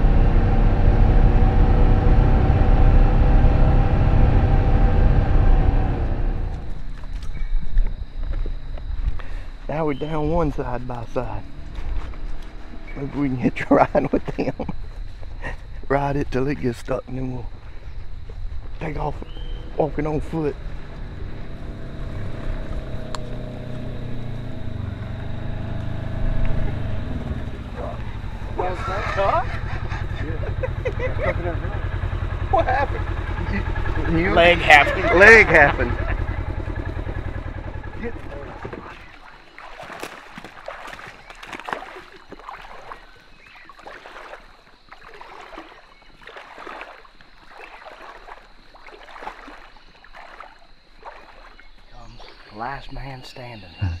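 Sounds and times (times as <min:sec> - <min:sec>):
utility vehicle engine running: 0:00.0 - 0:07.5, 0:18.8 - 0:40.8
footsteps on forest floor: 0:11.6 - 0:13.2, 0:38.2 - 0:52.5.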